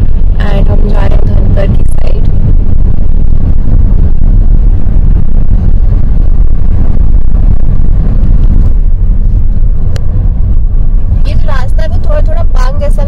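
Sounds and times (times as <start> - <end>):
car engine and road rumble: 0.0 - 13.0.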